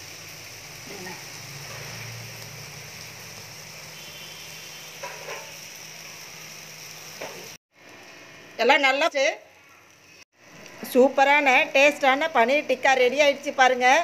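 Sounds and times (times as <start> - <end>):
gas burner flame hissing: 0.0 - 13.6
food sizzling over flame: 0.0 - 14.0.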